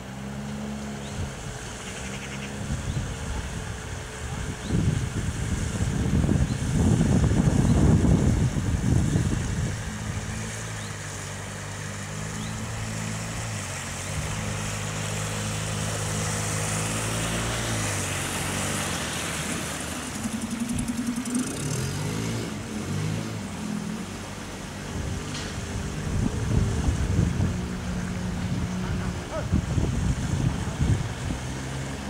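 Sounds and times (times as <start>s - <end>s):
outboard motor running: 0.0s - 32.0s
wind buffeting microphone: 2.6s - 10.9s, 24.8s - 31.8s.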